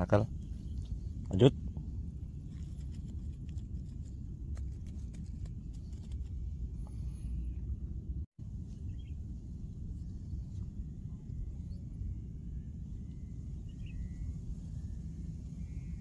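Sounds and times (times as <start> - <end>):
faint bird chirps: 9.9 - 16.0.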